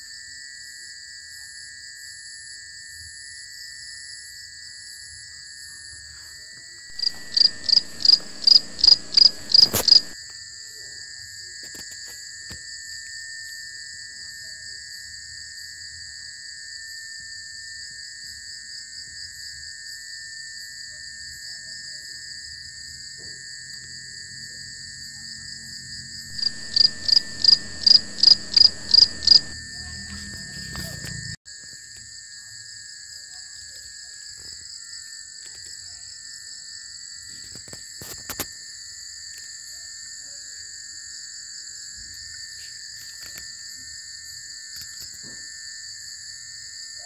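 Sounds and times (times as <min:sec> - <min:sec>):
crickets trilling: 0:00.1 - 0:10.2, 0:22.1 - 0:47.0
animal pulsed call notes: 0:06.9 - 0:10.2, 0:26.3 - 0:31.2.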